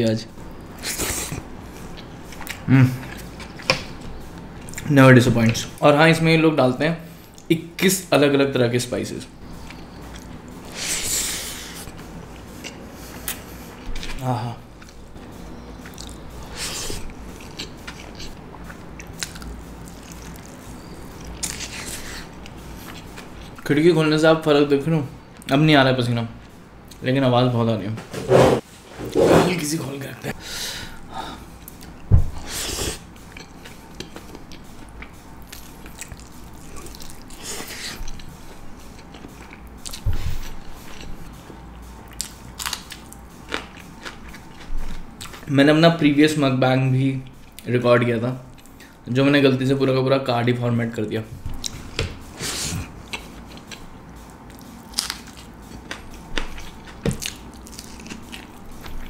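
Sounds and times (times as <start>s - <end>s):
chewing food: 15.8s - 16.4s, 17.0s - 23.6s, 33.2s - 41.2s, 42.1s - 45.5s, 52.9s - 59.0s.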